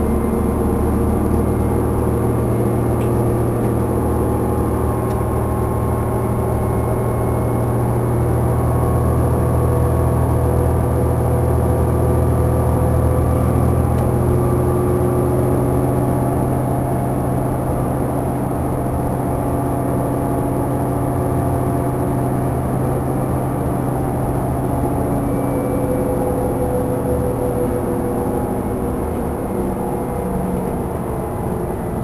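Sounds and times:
bus engine drone: 0.0 - 32.0
whining tones: 24.0 - 32.0.

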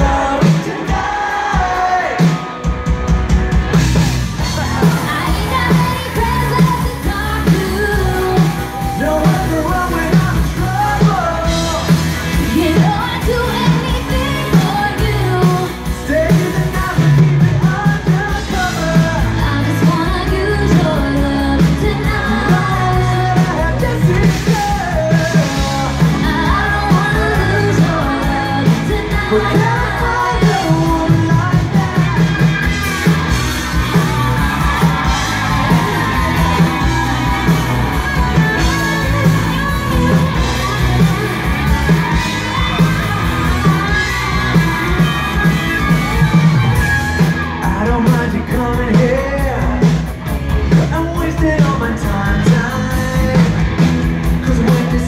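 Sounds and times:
drums: 0.0 - 55.0
electric guitar: 0.0 - 55.0
woman singing: 4.8 - 32.4, 35.4 - 46.7.

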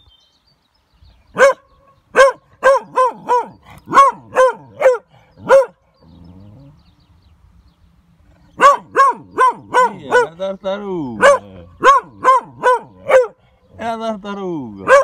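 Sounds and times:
dog barking: 1.4 - 5.8, 8.6 - 10.4, 11.2 - 13.4.

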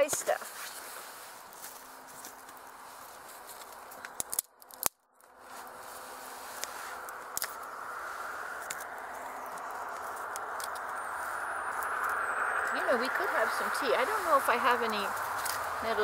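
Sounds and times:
dry sticks clicking and snapping: 3.4 - 5.3, 6.6 - 7.8, 8.5 - 12.8, 15.1 - 15.9.

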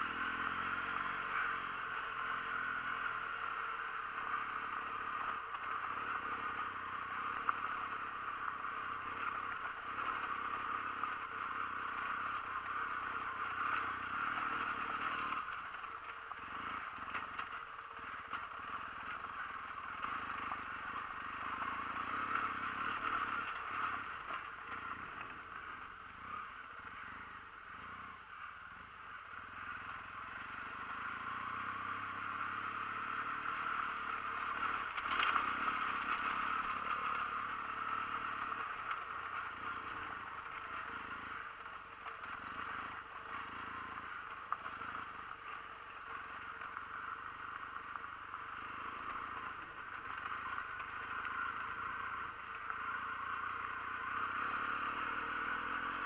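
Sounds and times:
motorcycle engine running: 0.0 - 56.0
tyres on gravel: 33.7 - 56.0.

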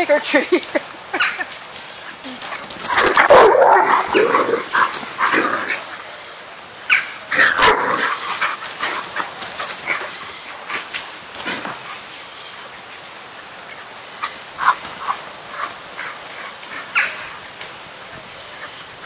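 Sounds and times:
dog barking: 3.0 - 4.3.

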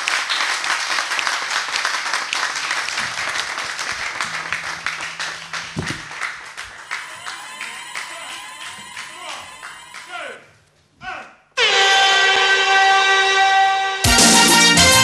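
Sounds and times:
audience applauding: 0.0 - 10.5.

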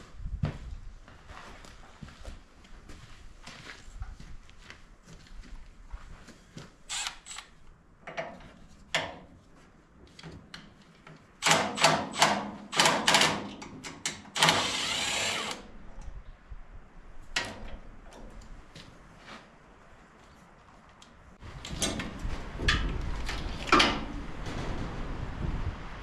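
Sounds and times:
metal clicks and knocks: 21.6 - 24.8.

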